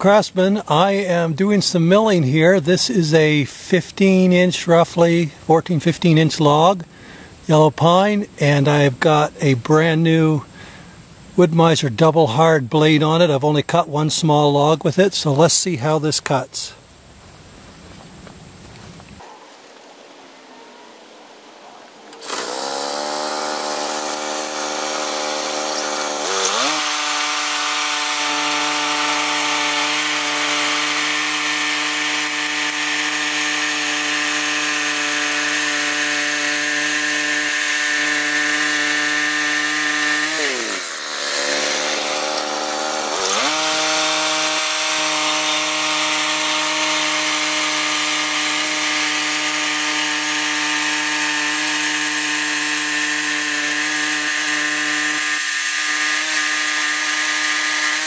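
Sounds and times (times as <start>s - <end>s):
band blade sawing log: 22.1s - 58.0s
small engine running: 22.2s - 58.0s.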